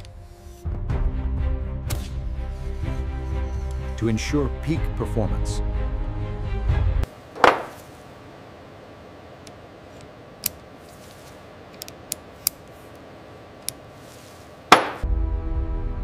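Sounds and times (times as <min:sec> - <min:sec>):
caliper clicking against steel: 0:09.4 - 0:10.7, 0:11.7 - 0:13.0, 0:13.6 - 0:13.8.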